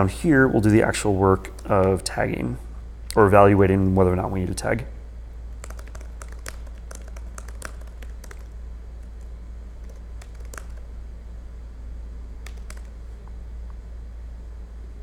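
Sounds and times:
low steady hum: 0.0s - 15.0s
keyboard typing: 5.6s - 10.9s, 12.4s - 13.0s.

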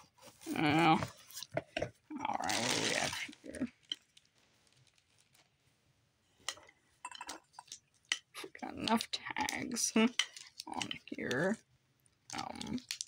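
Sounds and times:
plastic bag crinkling: 0.4s - 5.6s, 8.4s - 11.6s, 12.3s - 13.0s.

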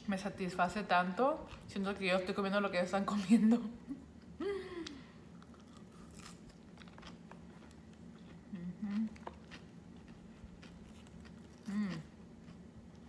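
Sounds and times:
close-up chewing with crunching: 5.4s - 13.0s.

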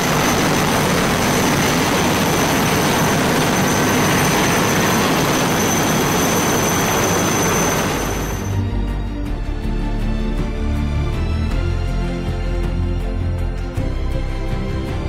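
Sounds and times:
jet engines roaring: 0.0s - 8.6s
high whine: 0.0s - 8.7s.

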